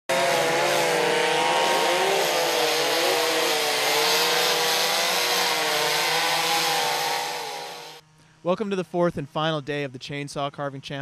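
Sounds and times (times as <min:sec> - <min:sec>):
chainsaw cutting log: 0:00.0 - 0:08.0.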